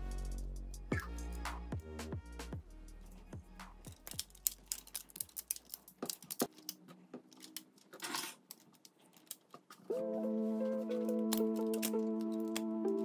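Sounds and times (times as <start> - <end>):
electronic music: 0.0 - 4.0, 9.9 - 13.0
rubber bands snapping: 3.6 - 6.8.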